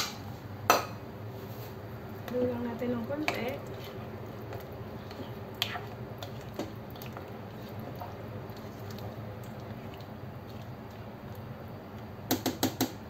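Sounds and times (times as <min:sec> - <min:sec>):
wet squishing of vegetables: 0:02.0 - 0:12.0.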